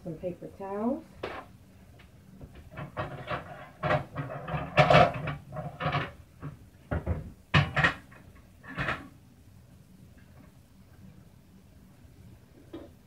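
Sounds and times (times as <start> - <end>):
kitchenware knocks and rattles: 2.4 - 9.2.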